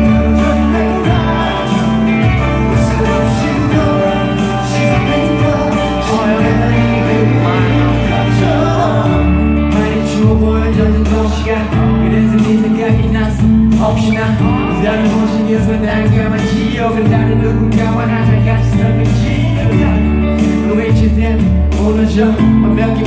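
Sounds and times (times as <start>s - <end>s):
live pop band music: 0.0s - 23.0s
man singing into a microphone: 0.0s - 23.0s
sustained bass notes: 0.0s - 23.0s.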